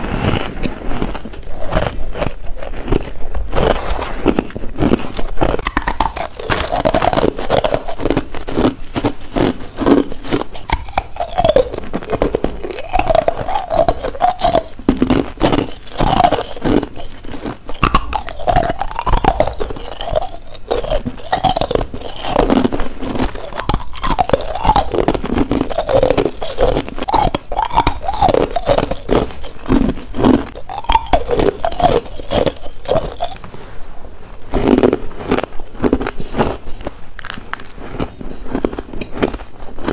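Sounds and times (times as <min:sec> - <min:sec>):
chewing crunchy ice: 0:00.0 - 0:39.9
ice squeaking between teeth: 0:04.8 - 0:33.5.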